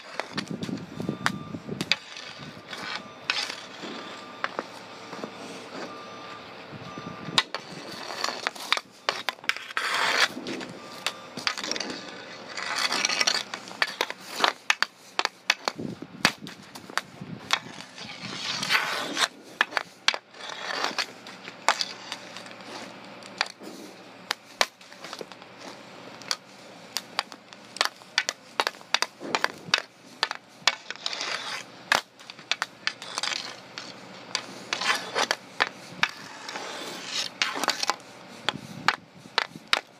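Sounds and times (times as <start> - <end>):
hockey stick scraping asphalt: 0.0 - 39.9
stick clacking against ball: 12.8 - 17.7, 18.6 - 22.5, 26.2 - 39.9.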